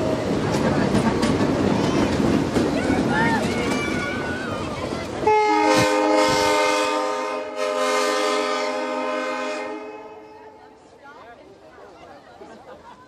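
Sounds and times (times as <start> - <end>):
passing train rushing: 0.0 - 13.0
train whistle chord: 5.3 - 10.6.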